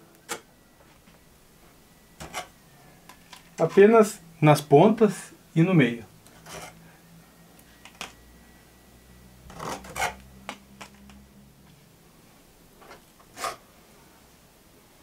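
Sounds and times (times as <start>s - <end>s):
metal spatula scraping and tapping: 2.2s - 3.8s, 6.3s - 6.8s.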